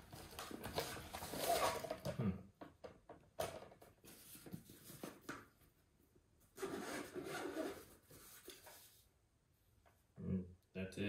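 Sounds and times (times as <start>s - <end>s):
rubbing of plastic and fabric: 6.6s - 9.1s.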